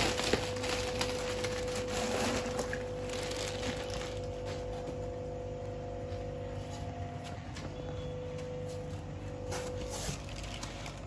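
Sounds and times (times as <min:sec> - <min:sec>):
plastic bag crinkling: 0:00.0 - 0:04.8, 0:09.5 - 0:11.0
steady low hum: 0:00.0 - 0:11.0.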